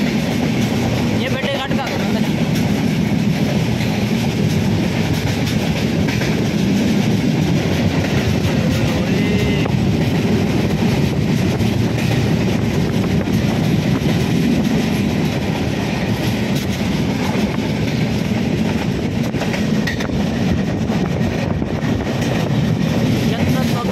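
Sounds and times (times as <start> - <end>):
train wheels rumbling on rails: 0.0 - 23.9.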